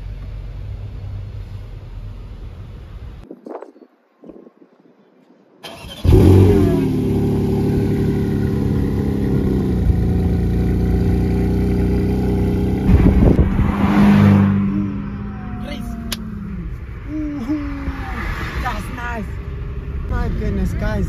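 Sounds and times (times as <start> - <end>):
car engine starting and idling: 5.6 - 17.6.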